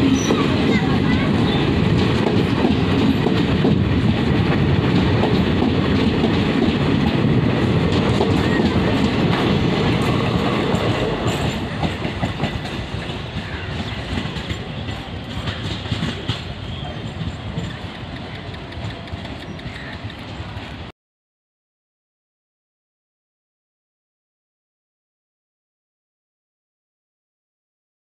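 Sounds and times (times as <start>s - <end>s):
train coaches rumbling past: 0.0s - 20.9s.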